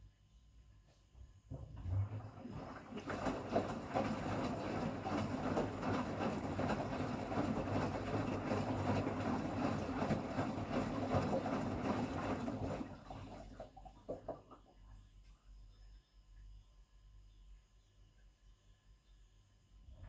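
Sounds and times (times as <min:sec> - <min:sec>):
washing machine churning water: 0:01.5 - 0:15.0.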